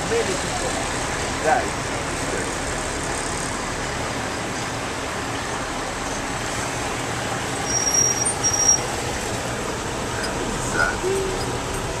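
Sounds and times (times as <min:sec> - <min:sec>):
road traffic hum: 0:00.0 - 0:12.0
high thin whistle: 0:07.6 - 0:08.8.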